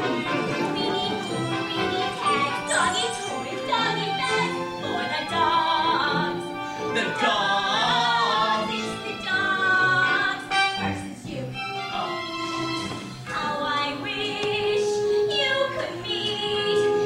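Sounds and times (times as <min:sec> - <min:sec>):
instrumental accompaniment: 0:00.0 - 0:17.0
woman singing show tune: 0:02.2 - 0:06.4, 0:13.3 - 0:17.0.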